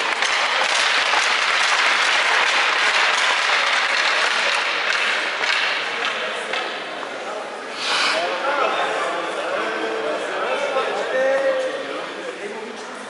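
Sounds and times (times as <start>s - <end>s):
crowd applauding: 0.0s - 5.8s.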